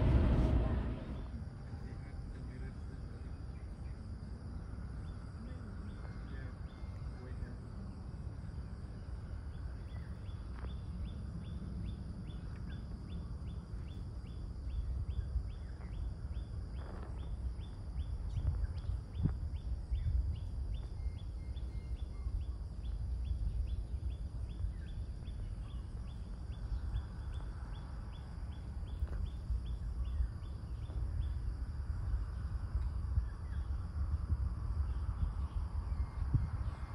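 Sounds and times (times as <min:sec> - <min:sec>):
steady low rumble: 0:00.0 - 0:01.7
insect chirping: 0:00.0 - 0:36.9.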